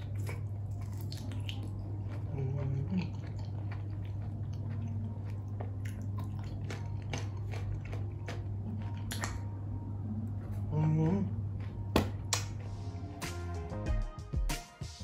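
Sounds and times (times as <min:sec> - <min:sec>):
close-up chewing mouth sounds: 0:00.0 - 0:09.4
steady low hum: 0:00.0 - 0:13.8.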